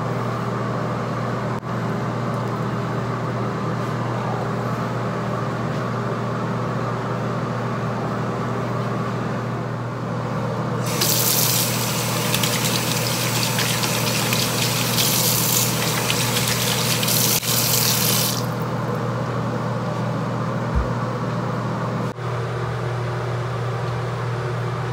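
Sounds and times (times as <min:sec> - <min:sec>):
sink tap running: 0:10.8 - 0:18.6
steady low hum: 0:13.7 - 0:24.9.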